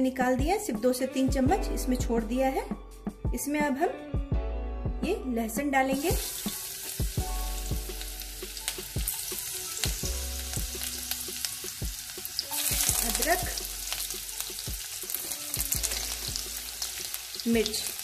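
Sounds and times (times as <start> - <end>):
garlic sizzling in hot oil: 5.9 - 18.0.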